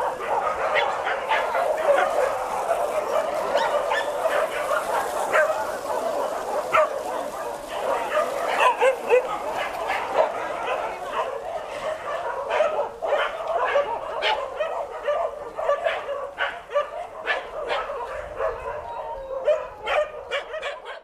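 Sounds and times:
dogs barking: 0.0 - 21.0.

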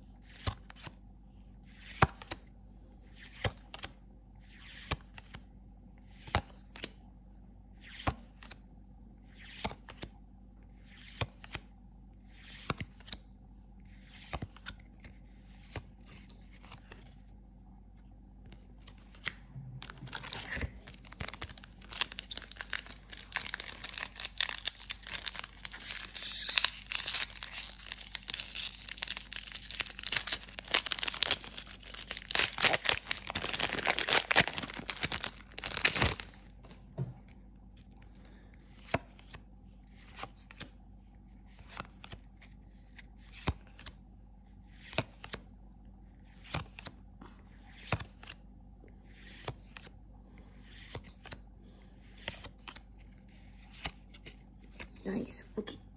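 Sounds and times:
foil wrapper crinkling and tearing: 19.8 - 36.5.

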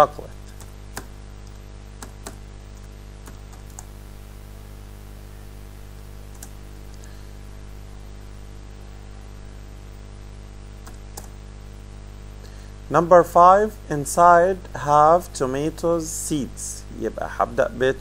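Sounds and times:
low electrical hum: 0.0 - 18.0
computer keyboard typing clicks: 0.5 - 3.9, 6.3 - 6.6, 10.8 - 11.4.

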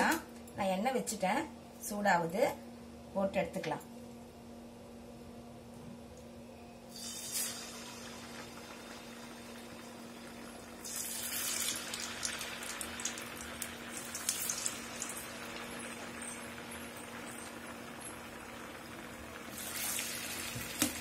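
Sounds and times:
batter deep-frying in oil: 6.9 - 21.0.

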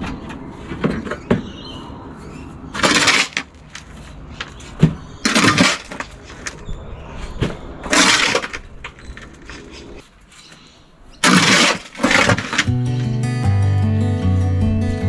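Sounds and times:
shovel scraping soil: 2.8 - 4.2, 5.2 - 6.6, 7.8 - 8.6, 11.2 - 12.7.

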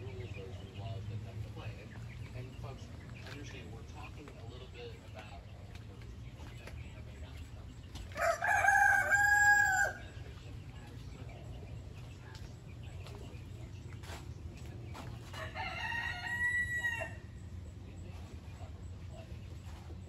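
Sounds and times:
steady low hum: 0.0 - 20.0
rooster crowing: 8.1 - 10.2, 15.4 - 17.3.

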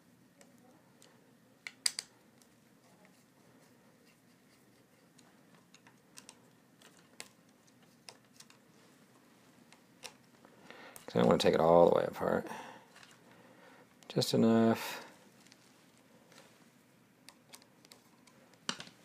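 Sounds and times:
screwdriver clicks and taps: 1.6 - 2.1.

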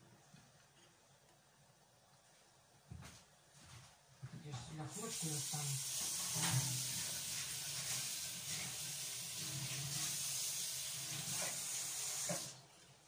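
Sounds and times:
dishes being rinsed: 4.9 - 12.6
tap running into sink: 5.8 - 12.6.

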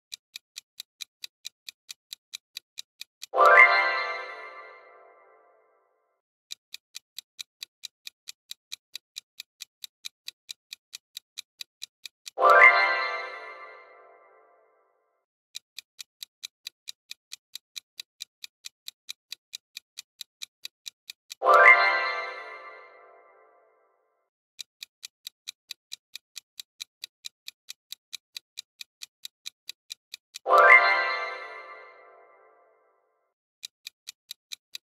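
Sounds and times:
clock ticking: 0.0 - 5.4, 6.4 - 14.5, 15.5 - 23.6, 24.5 - 32.8, 33.6 - 34.9
bright musical chime: 3.4 - 5.5, 12.4 - 14.6, 21.4 - 23.6, 30.5 - 32.7.

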